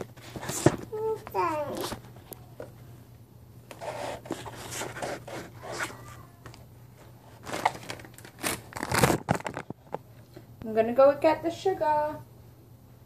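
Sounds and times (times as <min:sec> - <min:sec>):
scraping and rustling on counter: 0:00.0 - 0:02.8, 0:03.7 - 0:06.3
faint steady hum: 0:00.0 - 0:13.0.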